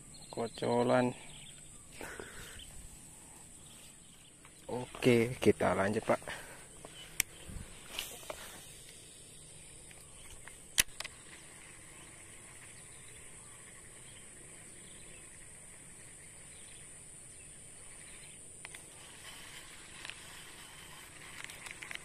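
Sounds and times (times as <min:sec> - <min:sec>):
insects droning: 0:00.0 - 0:22.0
sharp click: 0:09.9 - 0:11.2.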